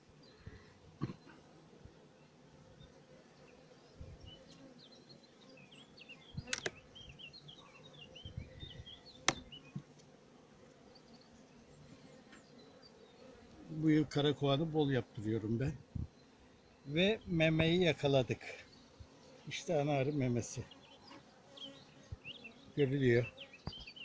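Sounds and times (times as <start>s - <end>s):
honeybees buzzing: 0.0s - 24.0s
sharp clicks: 6.5s - 6.8s.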